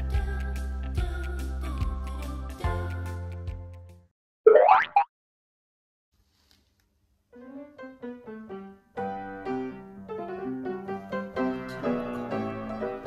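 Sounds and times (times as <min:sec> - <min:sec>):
piano music: 0:07.6 - 0:13.0.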